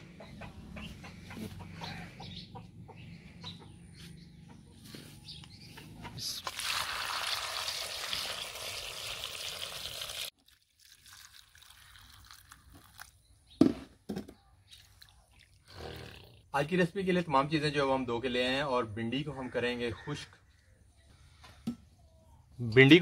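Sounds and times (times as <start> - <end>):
hens clucking: 0.0 - 6.4
faint water trickle: 6.4 - 13.2, 14.7 - 15.7
water pouring into steel bowl: 6.4 - 13.2.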